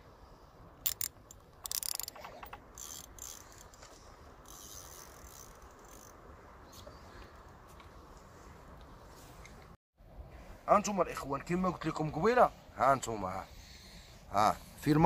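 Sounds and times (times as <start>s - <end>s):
fishing reel clicks: 0.8s - 3.8s, 4.4s - 6.2s
reel ratchet clicking: 0.8s - 6.2s.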